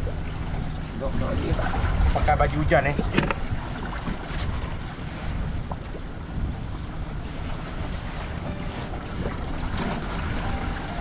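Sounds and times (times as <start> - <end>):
sea washing around hull: 0.0 - 11.0
wind buffeting microphone: 0.0 - 11.0.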